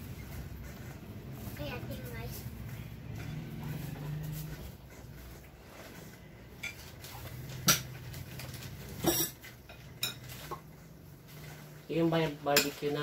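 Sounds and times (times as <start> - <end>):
metal spoons clinking on bowls: 9.0 - 10.6, 12.4 - 13.0.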